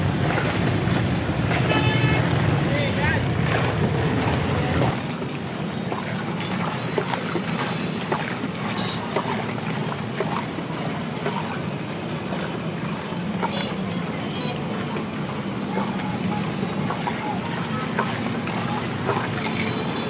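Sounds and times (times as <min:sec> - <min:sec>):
roadside traffic noise: 0:00.0 - 0:20.0.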